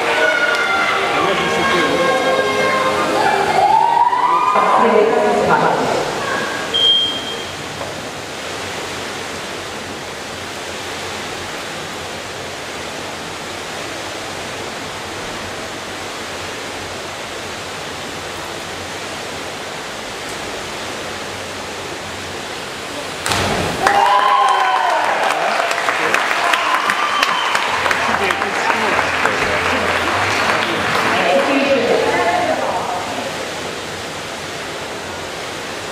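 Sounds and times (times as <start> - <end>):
crowd cheering: 0.0 - 6.8, 23.3 - 33.0
indoor pool hall hiss: 0.0 - 35.9
divers splashing into water: 23.0 - 32.1.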